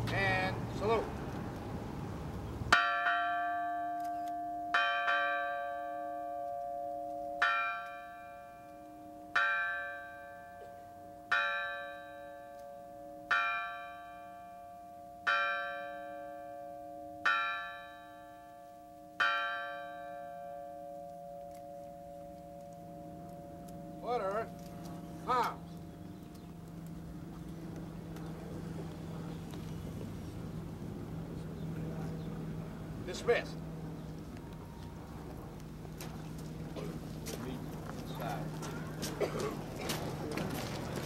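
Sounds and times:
large bell tolling: 2.7 - 27.3.

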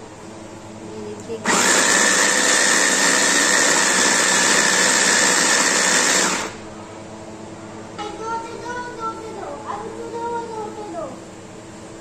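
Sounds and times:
hand blender whining: 1.4 - 6.6.

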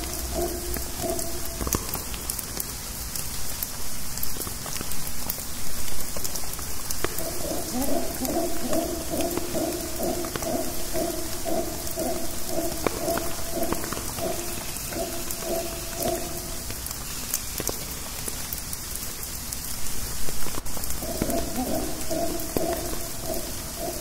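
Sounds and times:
distant howler monkey calls: 0.0 - 2.7, 6.8 - 17.4, 20.6 - 24.0
rain dripping from foliage: 0.0 - 24.0.

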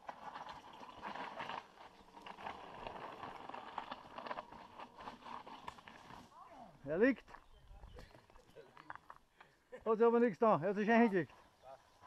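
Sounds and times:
bike clicks and rattles: 0.0 - 6.3
bike tyres crunching on gravel: 0.0 - 9.3.

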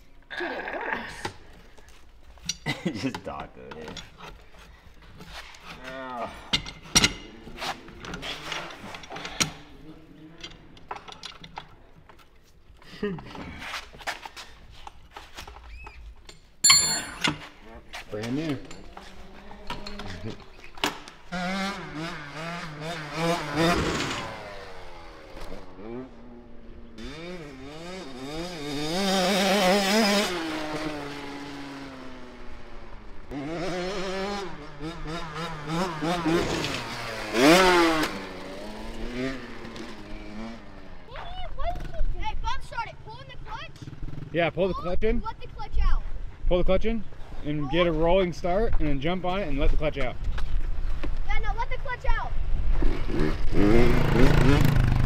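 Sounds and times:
dirt bike engine revving: 6.8 - 9.8, 18.3 - 44.6, 52.3 - 55.0.

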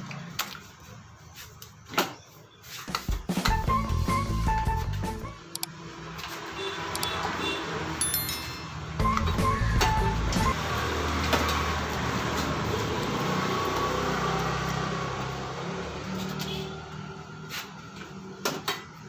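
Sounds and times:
sharp clicks: 5.5 - 5.7.

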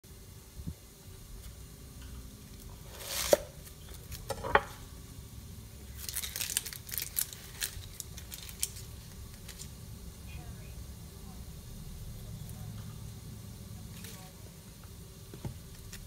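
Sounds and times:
onion pieces crackling and rustling: 2.5 - 4.8, 5.8 - 9.8, 15.6 - 16.0.

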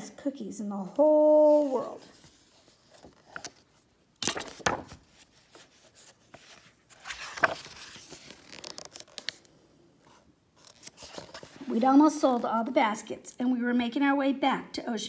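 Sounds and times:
book pages turning: 1.3 - 12.5
paper rubbing: 4.4 - 9.3.

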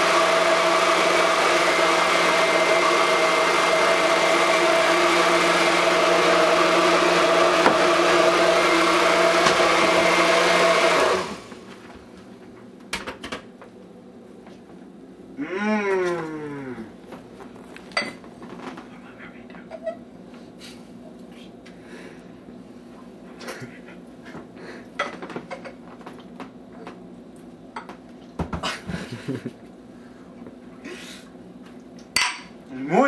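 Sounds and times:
kitchen appliance motor humming: 0.0 - 11.7.

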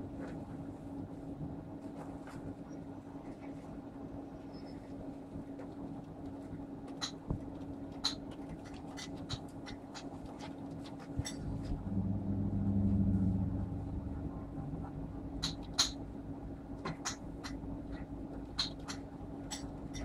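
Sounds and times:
low electrical hum: 0.0 - 20.0
louder low hum: 11.2 - 20.0.

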